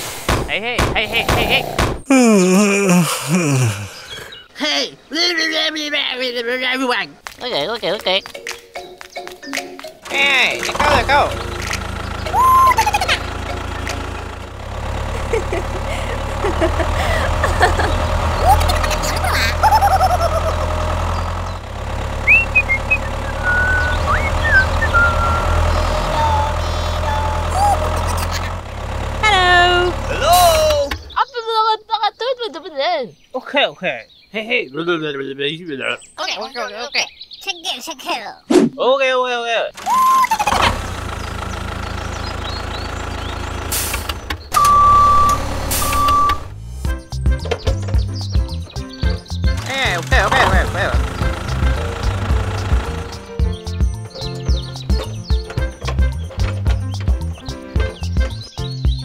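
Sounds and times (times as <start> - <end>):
tractor engine rumbling: 0.0 - 5.1, 7.2 - 31.3, 39.7 - 59.0
long reversing beeps: 44.6 - 46.5.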